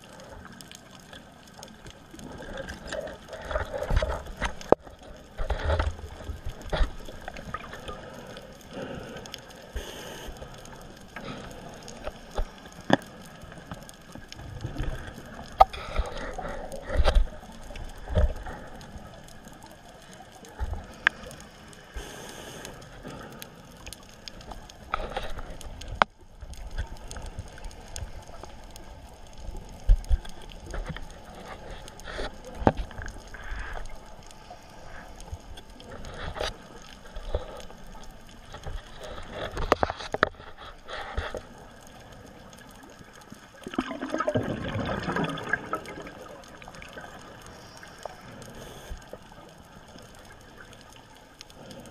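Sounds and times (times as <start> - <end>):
underwater clicks and crackles: 0.0 - 51.9.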